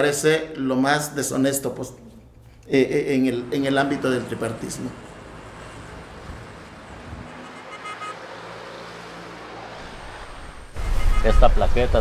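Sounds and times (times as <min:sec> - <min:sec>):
bus driving past: 0:02.9 - 0:12.0
cars driving past: 0:02.9 - 0:12.0.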